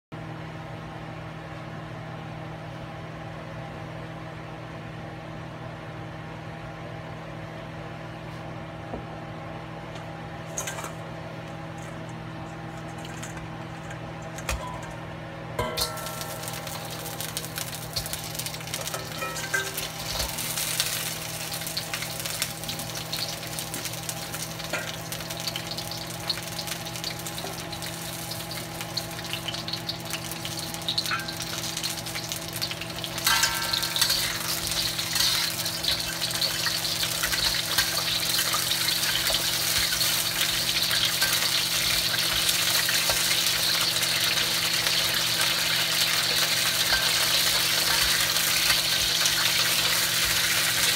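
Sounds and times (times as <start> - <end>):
steady low hum: 0.2 - 50.9
crabs sizzling in hot oil: 15.6 - 50.9.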